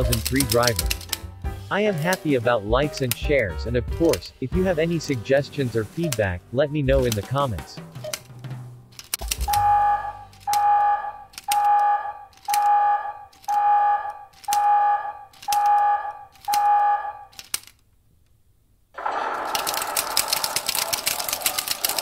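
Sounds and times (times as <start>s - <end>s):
split flap clicking: 8.0s - 9.7s, 17.3s - 17.9s
electronic alarm beeping: 9.4s - 17.4s.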